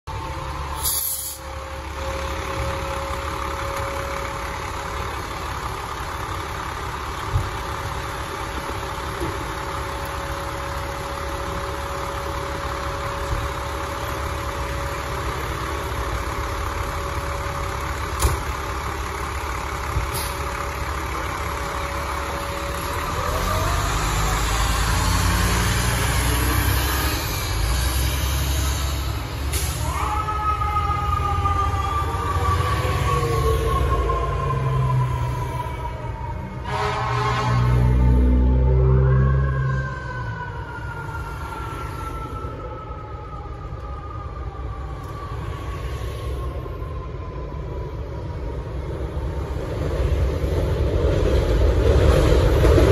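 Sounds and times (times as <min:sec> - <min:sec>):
fire truck diesel engine idling: 0:00.1 - 0:25.1.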